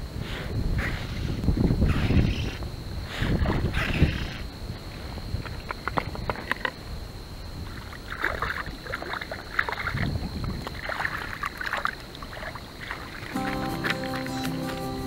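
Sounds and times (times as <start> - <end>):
fish splashing in water: 7.7 - 13.4
music: 13.4 - 15.0.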